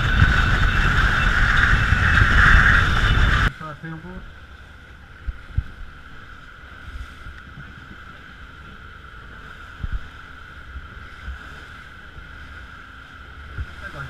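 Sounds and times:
wind on microphone: 0.0s - 3.6s, 4.2s - 14.0s
boat engine: 0.0s - 14.0s
water rushing along hull: 0.0s - 14.0s.

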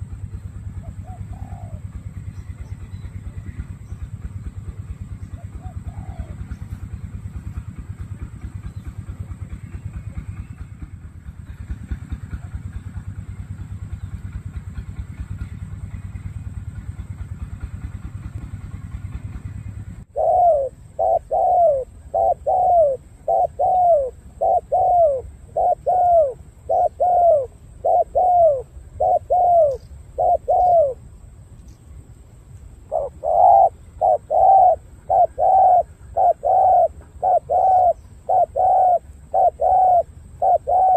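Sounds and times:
low steady rumble: 0.0s - 40.9s
dove cooing: 0.7s - 2.8s, 5.3s - 6.9s, 20.1s - 31.0s, 32.8s - 40.9s.

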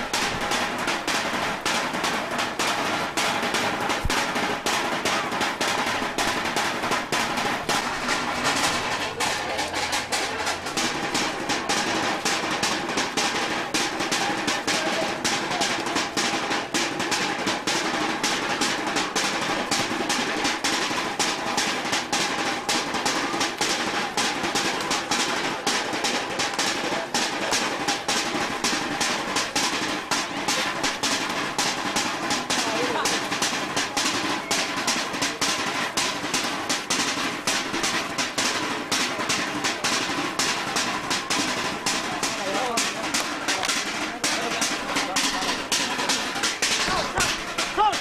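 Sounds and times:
fast drum rhythm with rolls: 0.0s - 48.0s.

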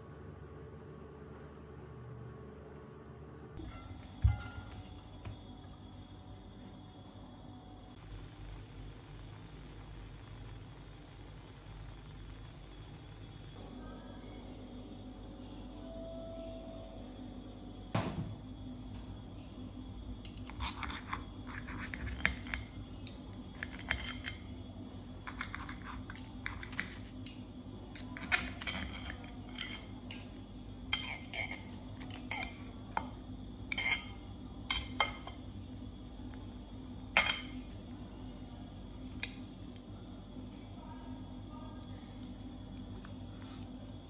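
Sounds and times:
steady low hum: 0.0s - 44.0s
knife scraping through pizza crust: 20.5s - 22.6s.

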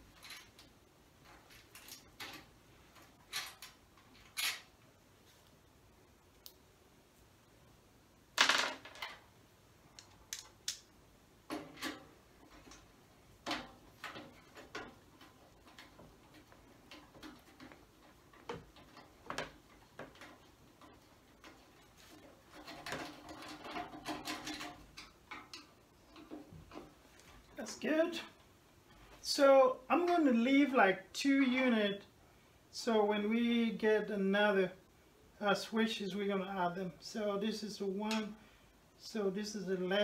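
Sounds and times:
metal clicks and knocks: 11.5s - 27.3s
metal rattling and scraping: 11.5s - 27.6s.

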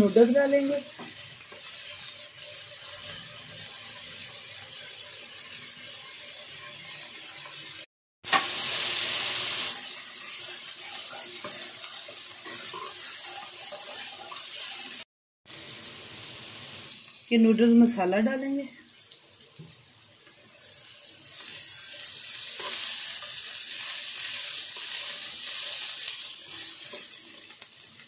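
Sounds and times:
food sizzling in a wok: 0.0s - 28.0s
spatula stirring and scraping: 10.2s - 15.0s, 20.4s - 27.6s.

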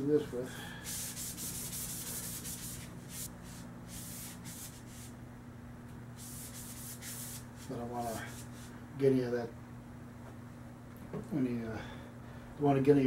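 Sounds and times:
abrasive pad scrubbing metal: 0.8s - 5.1s.

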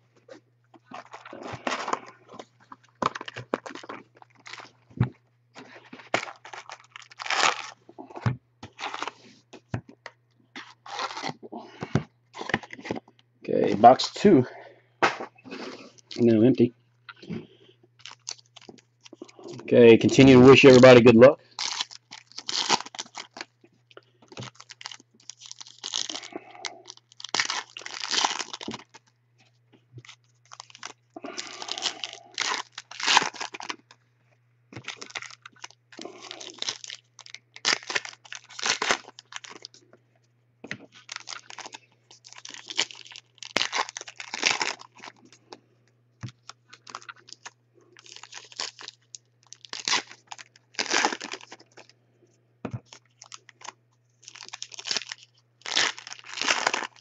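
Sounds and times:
foil wrappers tearing and crinkling: 0.9s - 4.7s, 5.6s - 7.8s, 8.7s - 9.2s, 10.6s - 11.4s, 18.0s - 23.6s, 24.3s - 29.1s, 30.0s - 34.0s, 34.8s - 39.8s, 40.9s - 45.4s, 46.2s - 51.9s, 52.8s - 57.0s.

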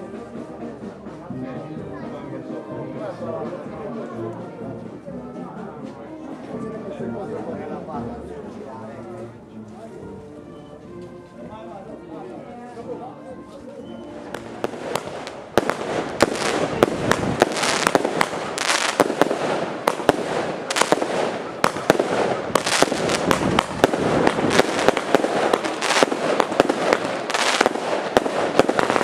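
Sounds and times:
firecrackers crackling: 14.2s - 29.0s.

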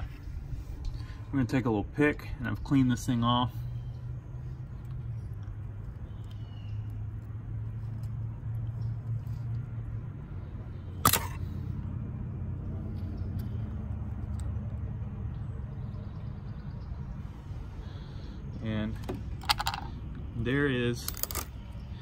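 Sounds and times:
steady low hum: 0.0s - 22.0s
sharp metallic click: 11.0s - 11.5s.

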